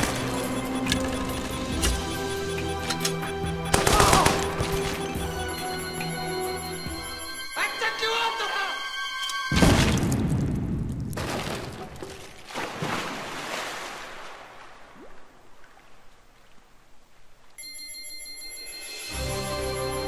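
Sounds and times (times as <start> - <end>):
ringing electronic chime: 4.8 - 8.4, 17.6 - 20.0.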